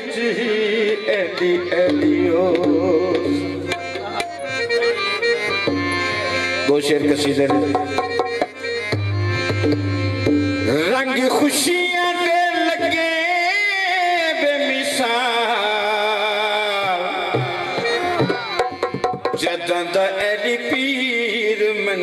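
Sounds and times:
harmonium melody: 0:00.0 - 0:22.0
hand drums playing: 0:01.2 - 0:11.5, 0:16.7 - 0:20.0.

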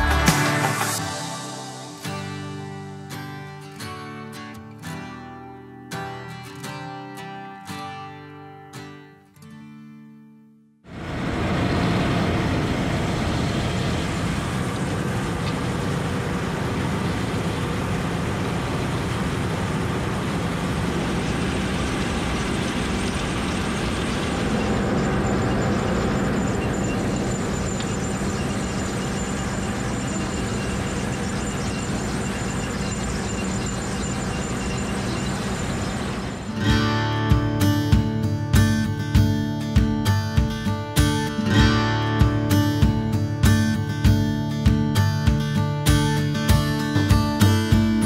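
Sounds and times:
tractor engine: 0:10.9 - 0:37.4.

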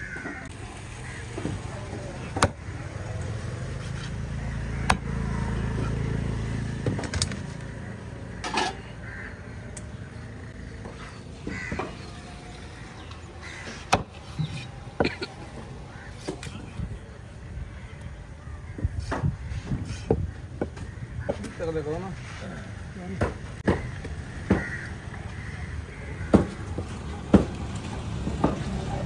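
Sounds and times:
machete chopping on wooden block: 0:04.8 - 0:05.1.

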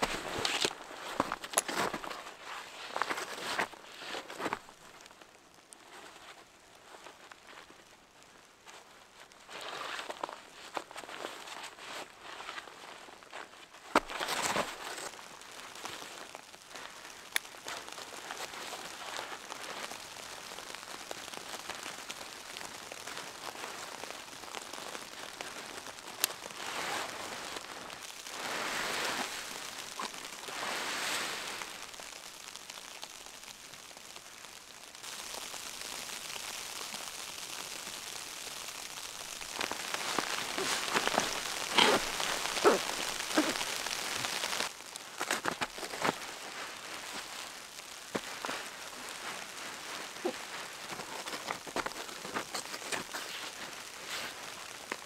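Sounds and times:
snow pattering on tent fabric: 0:00.0 - 0:55.0
fabric rustling: 0:39.0 - 0:54.9.

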